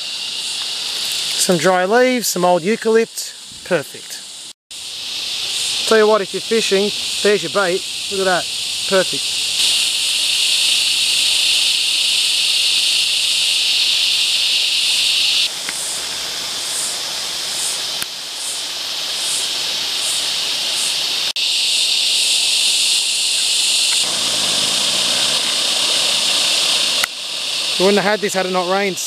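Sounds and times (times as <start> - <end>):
faint pulsing insect call: 0.0 - 29.0
high-pitched insect chorus: 0.0 - 29.0
water trickling over rocks: 0.5 - 1.6.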